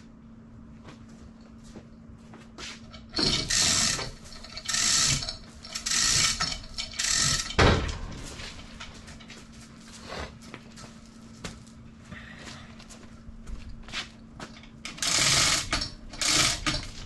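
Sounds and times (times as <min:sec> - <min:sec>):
chain hoist ratcheting: 0:02.9 - 0:07.6, 0:14.9 - 0:17.0.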